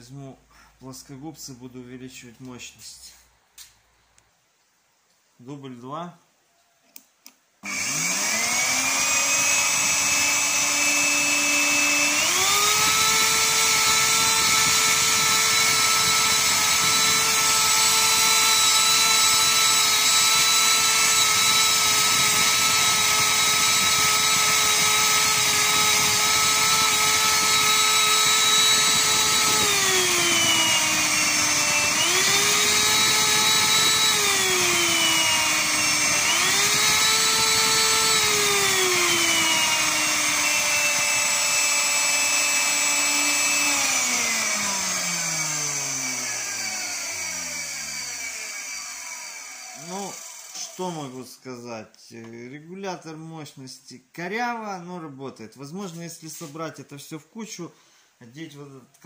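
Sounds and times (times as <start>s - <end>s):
vacuum cleaner motor whine: 7.6s - 50.8s.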